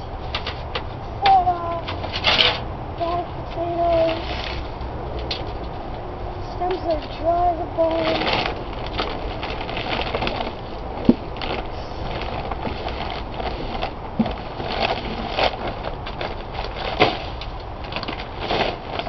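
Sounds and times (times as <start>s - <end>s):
plastic bag rustling and crackling: 6.6s - 19.0s.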